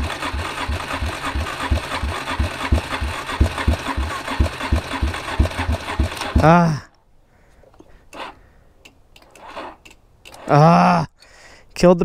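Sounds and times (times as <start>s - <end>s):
starter cranking engine: 0.0s - 6.7s, 8.1s - 8.4s, 9.2s - 10.7s.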